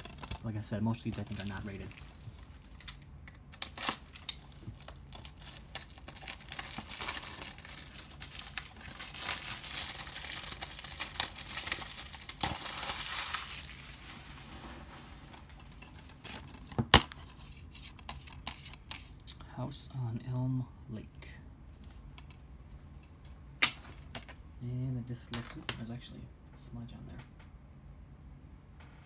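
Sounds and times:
cellophane crinkling and tearing: 0.0s - 17.4s.

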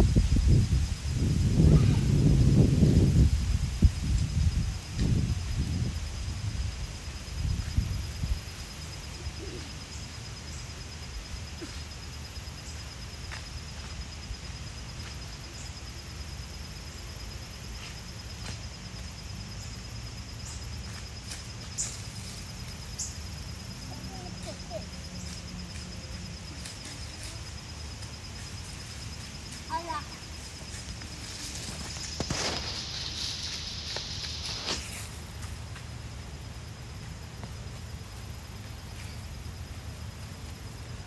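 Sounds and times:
wind rumbling on microphone: 0.0s - 8.7s.

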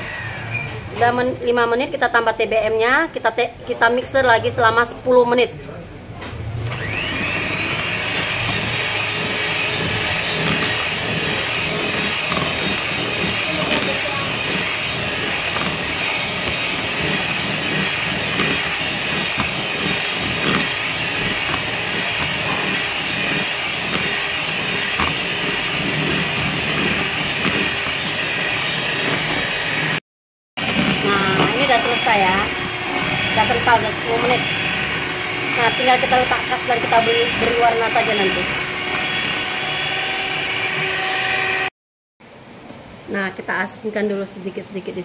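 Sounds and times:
electric hand mixer whipping batter: 6.7s - 30.0s, 30.6s - 41.7s.

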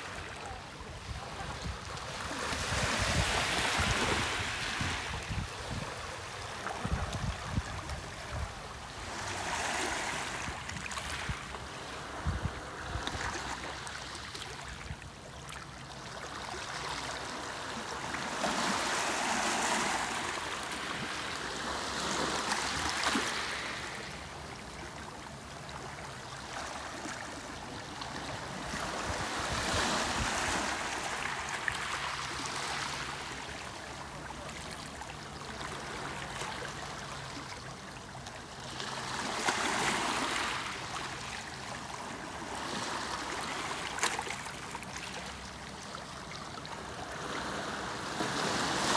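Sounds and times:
waves washing over pebbles: 1.4s - 14.2s, 16.7s - 24.4s.

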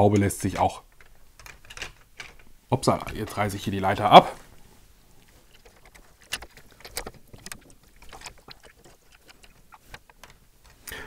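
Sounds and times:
plastic brick parts clicking: 0.1s - 3.3s, 5.4s - 11.0s.

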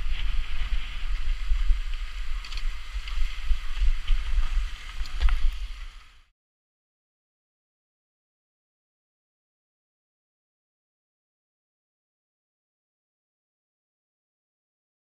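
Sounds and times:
bike knocking and rattling on stones: 0.0s - 6.2s
steady hiss: 0.0s - 6.3s
wind buffeting microphone: 0.0s - 6.3s.

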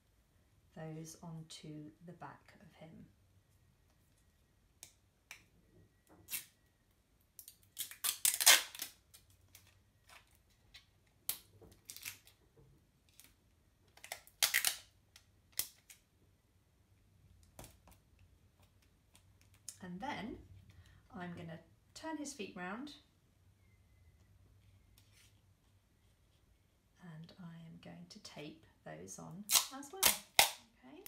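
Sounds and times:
sticky tape pulled off roll: 6.2s - 6.6s, 7.4s - 9.6s.

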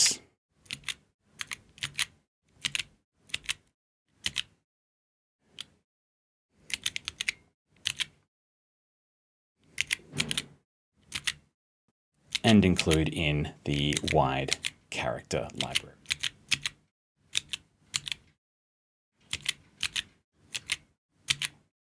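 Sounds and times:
keyboard key clicks: 9.8s - 10.5s, 19.3s - 21.6s.

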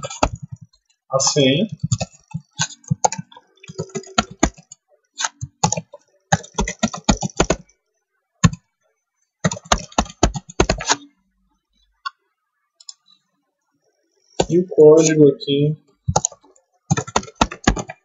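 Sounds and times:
typing on computer keyboard: 0.0s - 0.8s, 1.8s - 7.7s, 9.4s - 11.0s, 16.1s - 18.0s.

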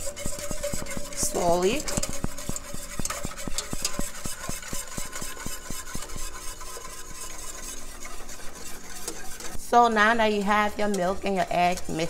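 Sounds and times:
wire whisk clicking against saucepan: 0.0s - 9.6s.

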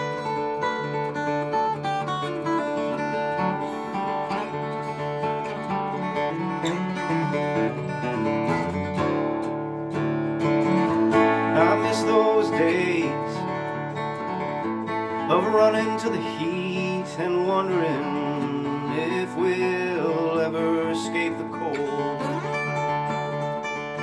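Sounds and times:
acoustic guitar chords: 0.0s - 24.0s
wavering voice-like tone: 6.6s - 7.8s.

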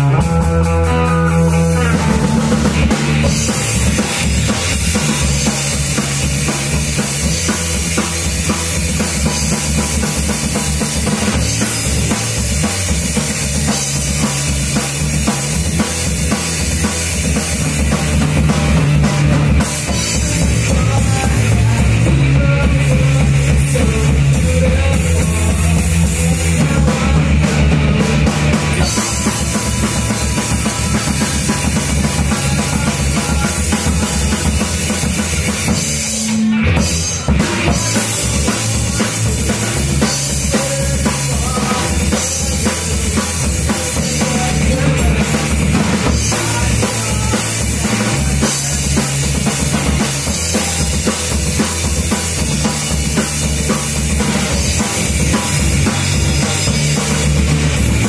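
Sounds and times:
drum kit beat: 0.0s - 58.0s
live rock band playing: 0.0s - 58.0s.

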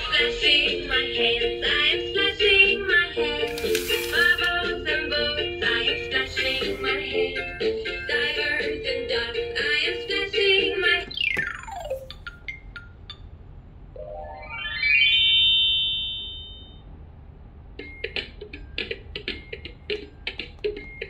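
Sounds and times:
toy speaker song: 9.9s - 12.3s
bouncy electronic tune: 11.0s - 13.4s, 14.0s - 16.6s.

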